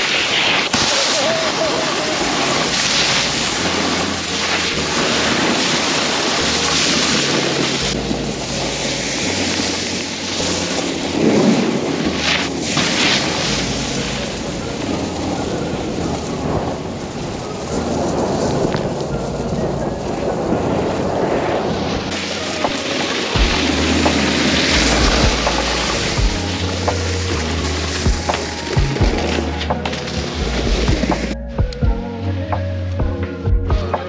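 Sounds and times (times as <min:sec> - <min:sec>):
snowboard scraping over slushy snow: 0:00.0 - 0:31.4
wind buffeting microphone: 0:00.0 - 0:34.0.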